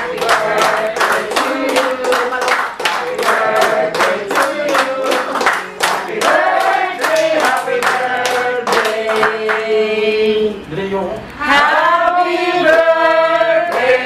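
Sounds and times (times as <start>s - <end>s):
people clapping in time: 0.0s - 9.7s, 13.6s - 14.0s
group singing: 0.0s - 10.7s, 11.4s - 14.0s.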